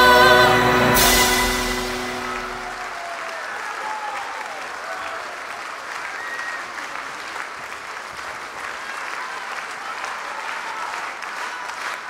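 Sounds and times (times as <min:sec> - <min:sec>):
music note: 0:00.0 - 0:03.0
audience applauding: 0:00.0 - 0:12.0.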